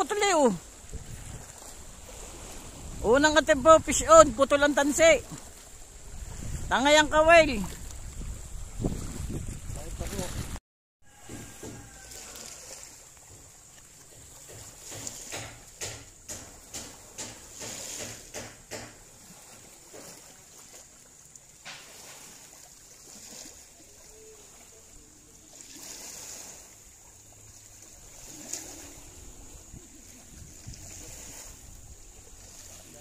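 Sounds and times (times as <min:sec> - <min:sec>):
seawater lapping: 0:00.0 - 0:33.0
water splashes: 0:00.0 - 0:33.0
soft water slaps: 0:11.3 - 0:24.8, 0:25.5 - 0:33.0.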